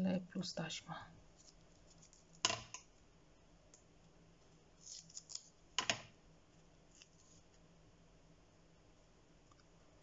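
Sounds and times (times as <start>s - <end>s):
tape rustling: 1.4s - 2.5s, 4.8s - 5.8s.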